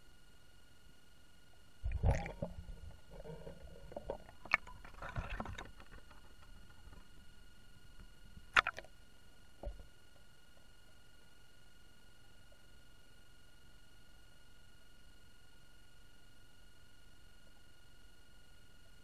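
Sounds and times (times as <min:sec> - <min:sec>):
faint electronic whine: 0:00.0 - 0:19.0
water sloshing: 0:01.8 - 0:07.4
muffled underwater thumps: 0:01.9 - 0:07.3.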